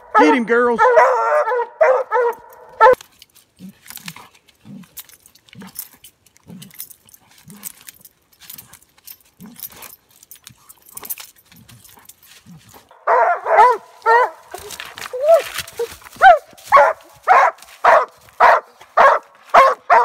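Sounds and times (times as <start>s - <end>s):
hounds bawling: 0.0s - 3.0s, 12.9s - 20.0s
crackling in dry leaves: 11.0s - 20.0s.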